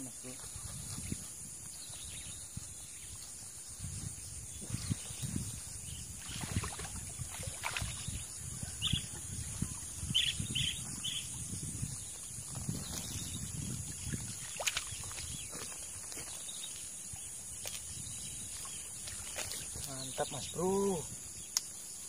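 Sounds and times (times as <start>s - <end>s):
water splashing and sloshing: 4.6s - 20.3s.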